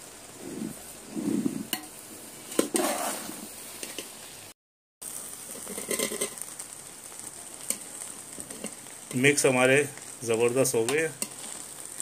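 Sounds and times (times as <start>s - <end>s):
metal spoon stirring rice in pot: 2.5s - 4.1s, 5.5s - 6.5s, 7.6s - 9.3s, 10.8s - 11.8s.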